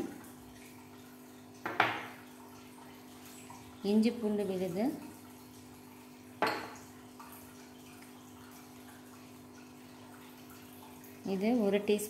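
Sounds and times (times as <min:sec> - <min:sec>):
kitchenware clink: 0:06.4 - 0:06.8.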